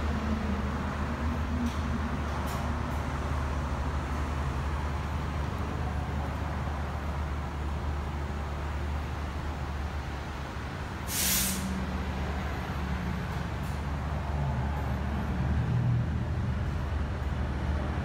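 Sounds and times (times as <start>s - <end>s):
hissing air burst: 11.1s - 11.7s.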